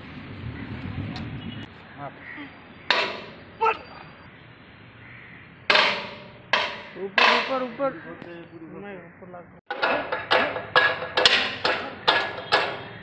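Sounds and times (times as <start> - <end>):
wrench clanking on steel bolts: 5.7 - 7.8, 9.7 - 13.0.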